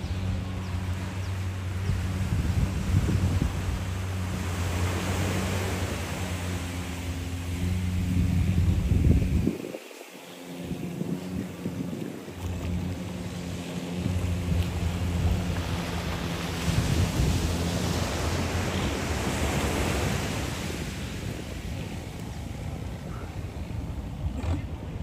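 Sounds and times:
low engine hum: 0:00.0 - 0:25.0
surf washing on sand: 0:00.0 - 0:25.0
wind buffeting microphone: 0:00.0 - 0:25.0.

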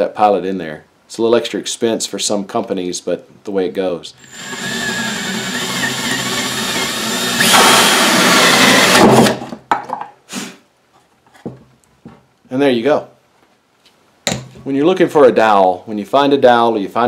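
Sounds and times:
drill cutting through wood: 0:04.2 - 0:09.4.

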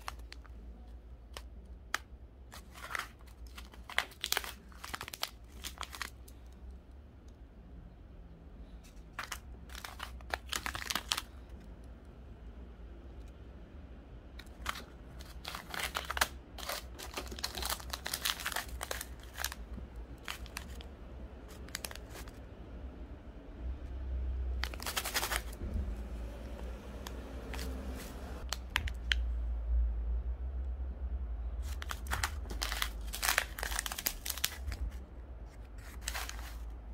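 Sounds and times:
plastic bags crinkling: 0:00.0 - 0:00.6, 0:01.3 - 0:06.5, 0:08.9 - 0:11.4, 0:14.4 - 0:22.4, 0:24.6 - 0:25.6, 0:27.1 - 0:29.2, 0:31.6 - 0:35.0, 0:35.8 - 0:36.7.

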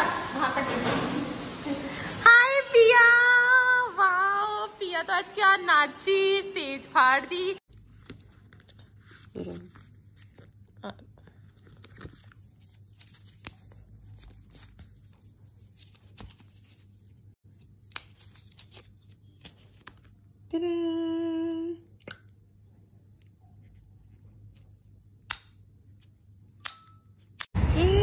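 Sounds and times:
cardboard and paper rustling: 0:07.7 - 0:10.6, 0:11.3 - 0:20.2
loud steady tone: 0:27.6 - 0:28.0.

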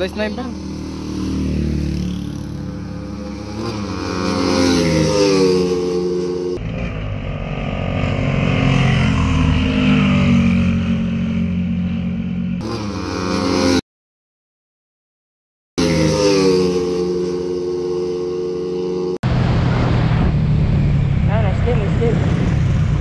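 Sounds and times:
motorcycle engine at full throttle: 0:00.0 - 0:13.8, 0:15.8 - 0:23.0
racing motorcycles approaching: 0:00.0 - 0:13.8, 0:15.8 - 0:23.0.

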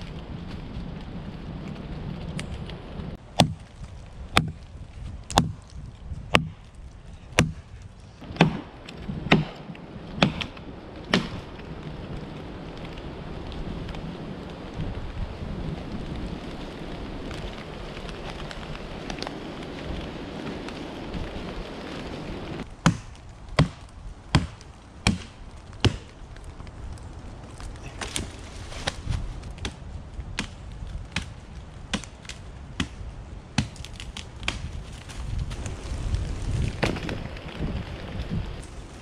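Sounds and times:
axe chopping log: 0:03.3 - 0:03.7, 0:04.3 - 0:04.6, 0:05.3 - 0:06.7, 0:07.3 - 0:11.5, 0:22.8 - 0:26.1, 0:30.4 - 0:33.0, 0:33.6 - 0:34.7.

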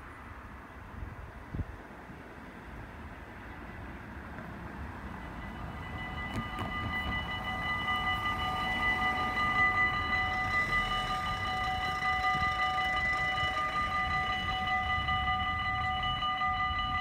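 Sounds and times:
level crossing warning bells ringing: 0:04.6 - 0:17.0.

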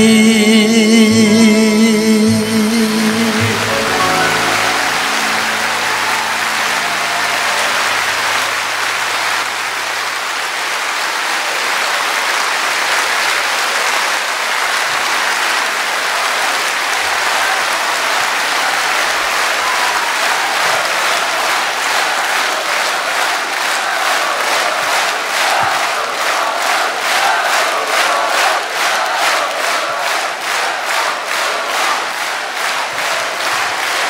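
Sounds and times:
low held note: 0:01.0 - 0:10.3
audience applauding: 0:02.0 - 0:34.0.

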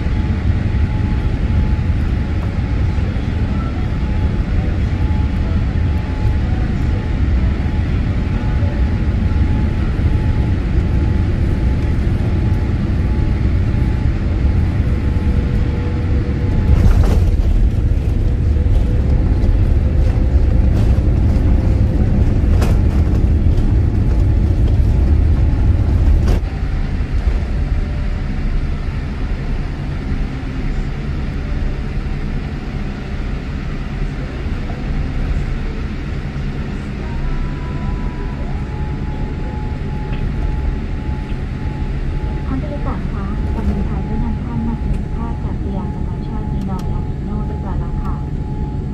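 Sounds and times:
rolling rumble on runway: 0:00.0 - 0:37.4
jet engine and air rumble: 0:00.0 - 0:48.9.

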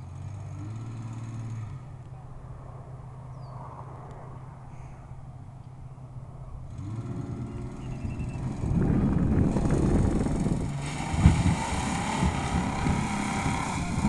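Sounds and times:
engine revving under load: 0:00.0 - 0:02.1, 0:06.6 - 0:14.0
tyres churning mud: 0:09.6 - 0:14.0.

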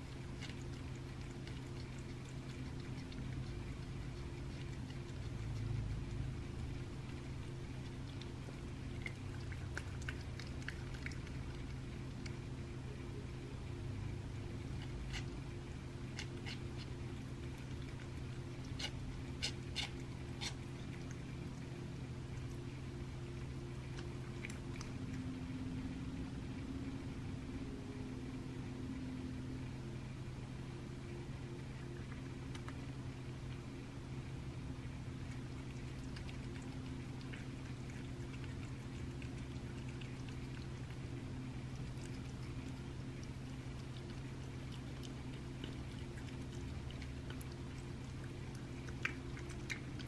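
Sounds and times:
eating clicks: 0:00.0 - 0:12.7, 0:35.0 - 0:50.0
cat chewing and licking meat: 0:00.0 - 0:50.0
steady low hum: 0:00.0 - 0:50.0.

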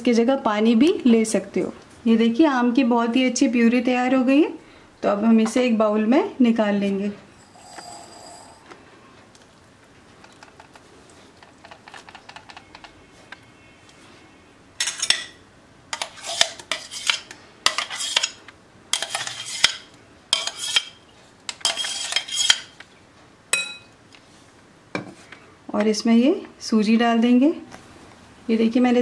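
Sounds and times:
metal spoon scraping steel jar: 0:07.4 - 0:08.6, 0:16.0 - 0:18.4, 0:19.0 - 0:19.8, 0:20.4 - 0:21.0, 0:21.6 - 0:22.7.

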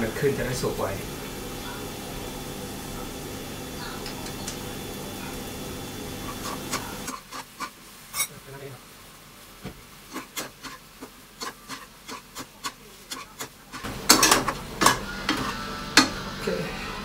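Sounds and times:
greens sizzling: 0:00.0 - 0:17.0
spatula scraping and tapping pan: 0:06.2 - 0:08.3, 0:09.6 - 0:16.2.

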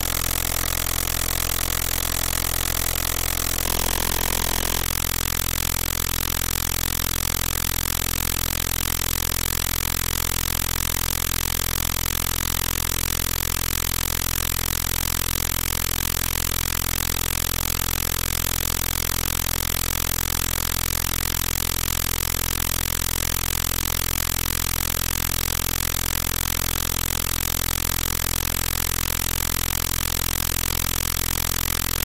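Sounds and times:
low engine-like drone: 0:00.0 - 0:04.9.

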